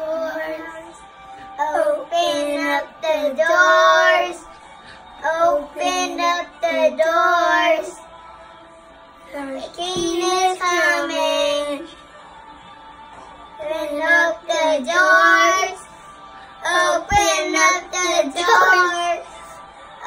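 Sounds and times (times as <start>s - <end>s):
boys singing rock song: 1.5s - 4.6s, 5.2s - 8.1s, 9.3s - 12.0s, 13.6s - 19.6s.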